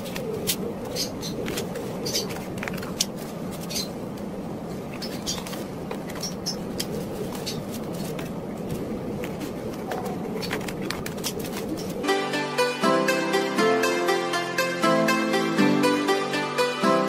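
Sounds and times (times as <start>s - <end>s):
paper rustling: 0.0s - 4.3s, 4.9s - 12.0s
low background noise: 0.0s - 14.8s.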